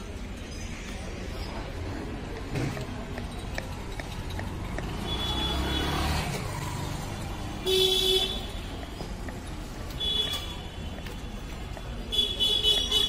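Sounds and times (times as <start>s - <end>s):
traffic engine rumble: 0.0s - 13.0s
vehicle horn honking: 7.6s - 8.5s.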